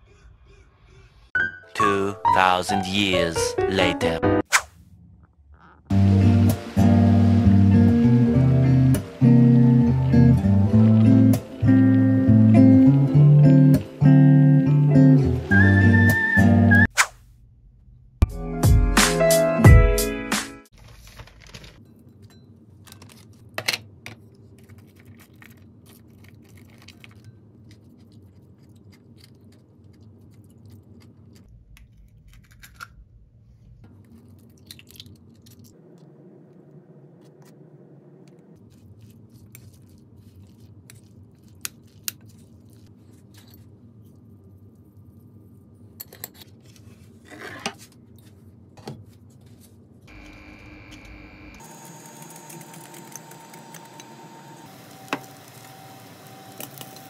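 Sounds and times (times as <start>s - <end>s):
low room hum: 20.8s - 57.0s.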